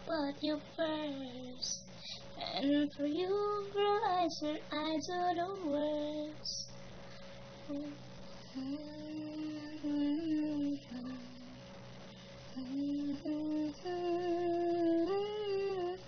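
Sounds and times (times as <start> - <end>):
person humming: 7.7 - 11.6, 12.6 - 16.0.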